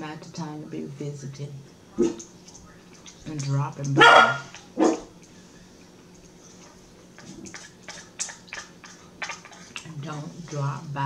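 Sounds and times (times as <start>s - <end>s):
mouth eating sounds: 2.0s - 10.7s.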